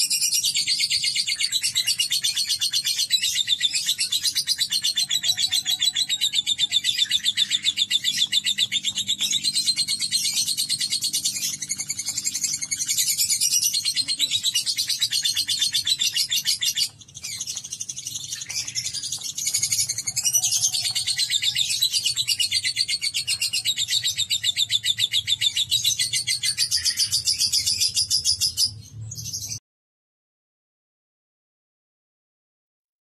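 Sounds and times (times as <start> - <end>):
lovebird chattering: 0.2 - 28.5.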